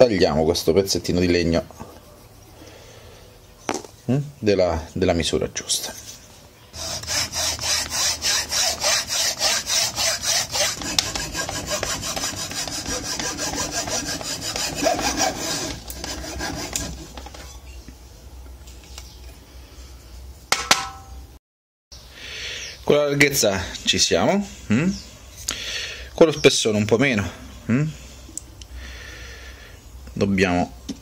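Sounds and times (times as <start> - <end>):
hacksaw cutting wood: 6.8 - 17.4.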